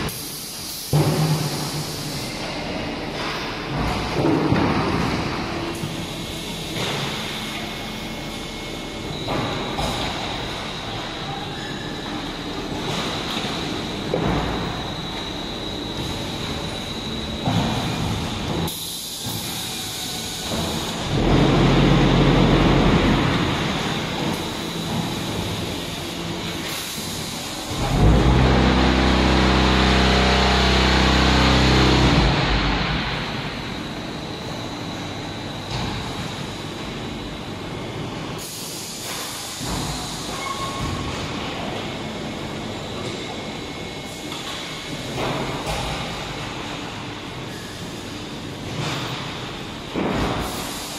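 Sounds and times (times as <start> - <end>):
machinery rumble: 1.1 - 38.4
hiss: 50.3 - 50.9.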